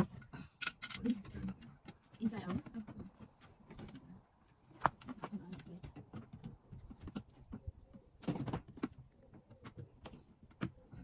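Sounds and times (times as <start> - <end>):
plastic panels clicking and knocking: 4.9 - 11.0.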